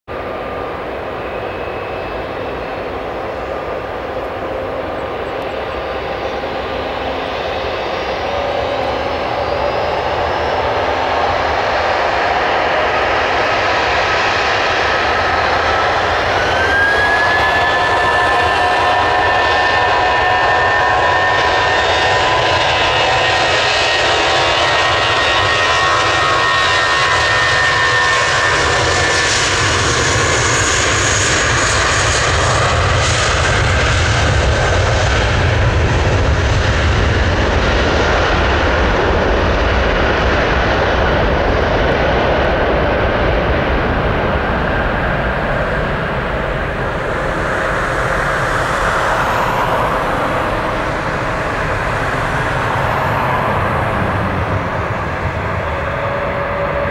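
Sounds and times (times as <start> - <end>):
jet engine roar: 0.1 - 56.9
whining fan tone: 0.2 - 29.4, 37.0 - 56.9.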